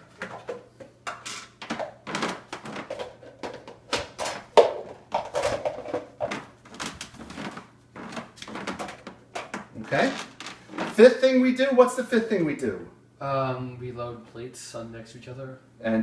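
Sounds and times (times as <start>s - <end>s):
plastic containers clattering in rack: 0.0s - 11.0s.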